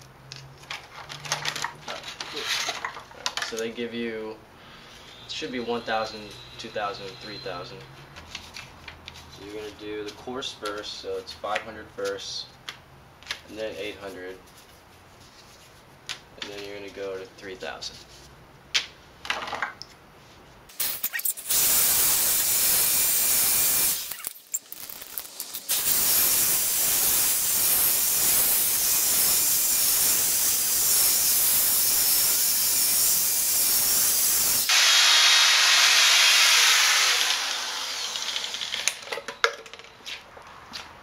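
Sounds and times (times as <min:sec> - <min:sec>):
power drill sanding plastic: 0:20.7 - 0:24.3, 0:25.2 - 0:39.0.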